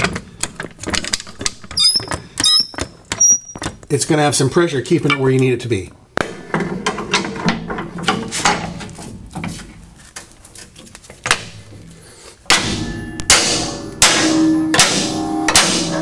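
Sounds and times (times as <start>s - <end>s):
sledgehammer striking steel bar: 12.5s - 16.0s.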